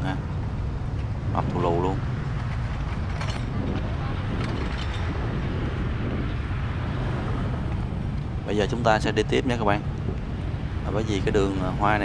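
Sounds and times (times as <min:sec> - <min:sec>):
low street rumble: 0:00.0 - 0:12.0.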